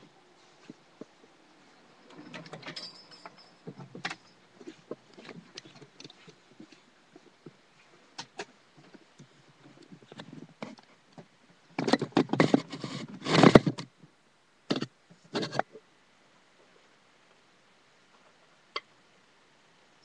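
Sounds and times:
rustling near microphone: 0.0 - 14.0.

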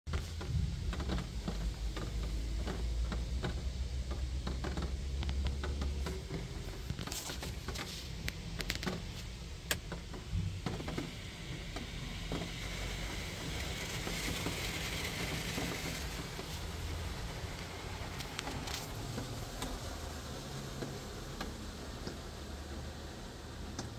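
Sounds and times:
water spray pattering on windshield: 0.1 - 23.9
steady hiss of spray: 11.0 - 23.9.

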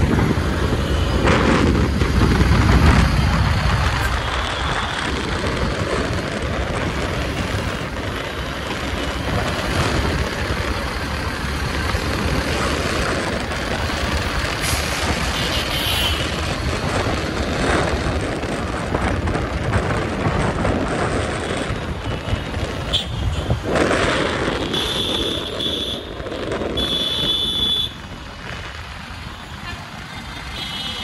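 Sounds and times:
deep rumble: 0.0 - 15.3
rushing wind and road noise: 0.0 - 31.0.

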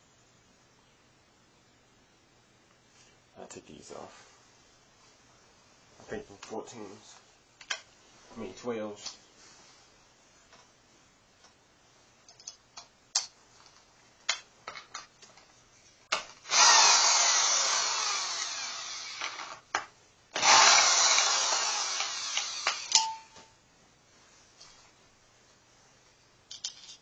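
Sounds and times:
power drill running: 16.4 - 19.6, 20.4 - 23.0.

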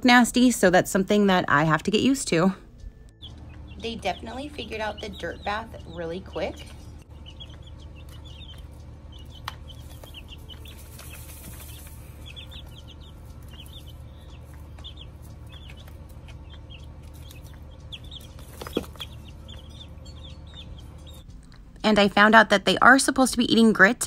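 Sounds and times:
low steady hum: 0.0 - 24.0
chicks peeping: 3.1 - 21.3.

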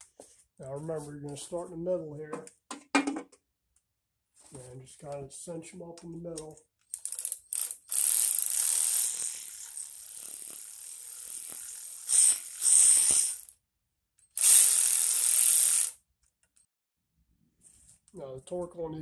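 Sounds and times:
cordless electric ratchet running: 6.9 - 13.6, 14.3 - 16.0.

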